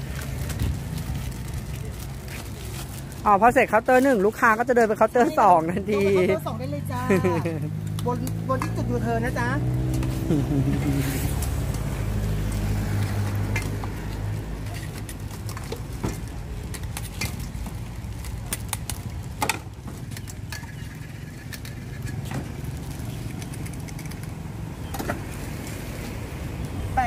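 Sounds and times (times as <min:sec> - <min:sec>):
vehicle engine running: 0:06.0 - 0:13.5.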